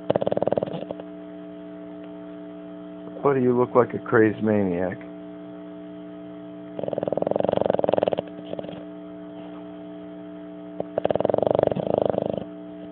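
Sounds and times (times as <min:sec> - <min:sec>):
dog snoring: 0:00.0 - 0:01.1, 0:06.7 - 0:09.7, 0:10.8 - 0:12.9
steady electrical hum: 0:00.0 - 0:12.9.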